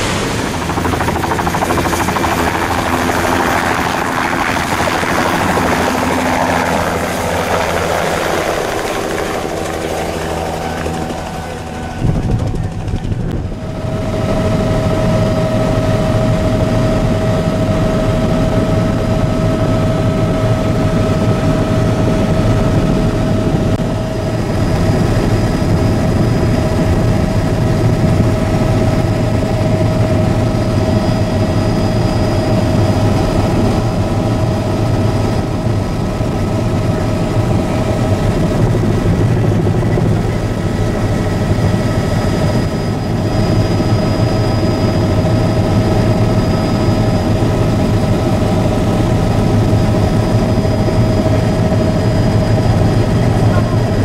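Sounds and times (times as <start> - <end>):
aircraft engine drone in cabin: 0.0 - 54.0.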